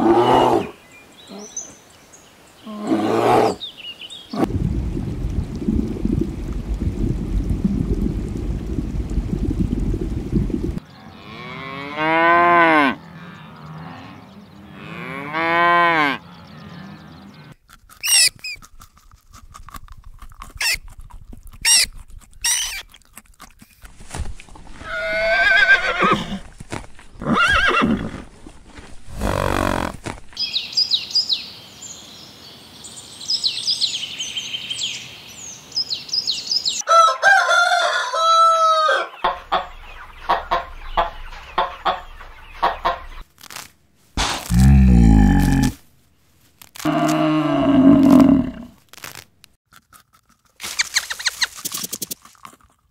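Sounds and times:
cattle mooing: 29.2 - 30.0
chickens clucking: 39.2 - 43.2.

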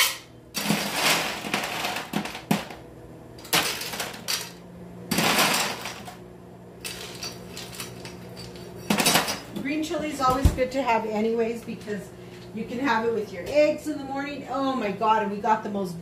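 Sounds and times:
ice cubes clattering into glass: 5.1 - 6.1, 6.8 - 9.4.

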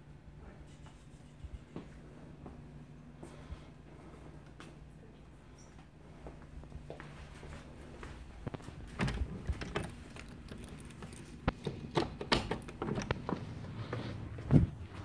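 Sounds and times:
door latch clicks and rattles: 9.0 - 13.4.

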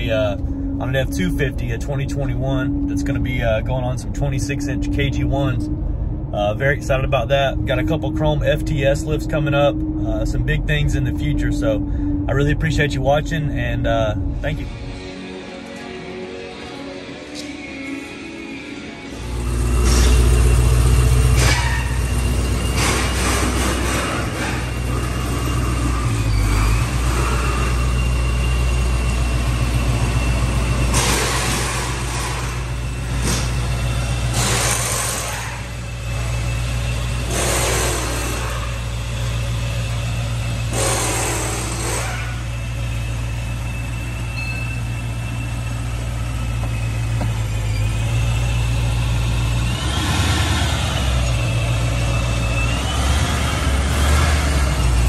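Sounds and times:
car engine idling: 0.0 - 18.2, 19.0 - 55.0
short loud engine bursts: 19.2 - 28.8, 29.4 - 39.0, 40.6 - 42.8.

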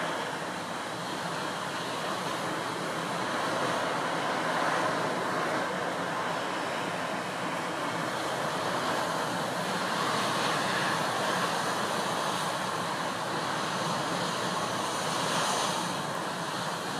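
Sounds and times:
strong wind: 0.0 - 16.9.

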